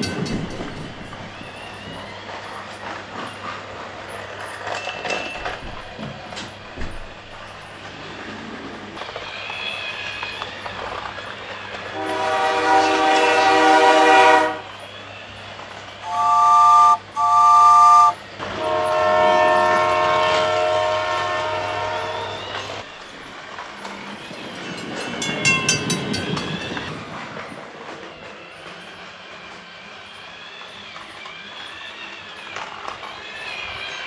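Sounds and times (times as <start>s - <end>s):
toy train electronic whistle: 16.0s - 22.7s.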